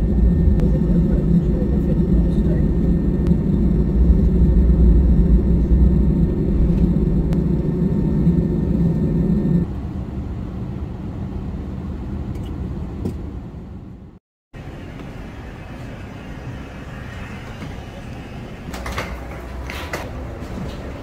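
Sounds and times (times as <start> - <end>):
high-pitched whine: 0.0 - 10.2
aircraft cabin rumble: 0.0 - 21.0.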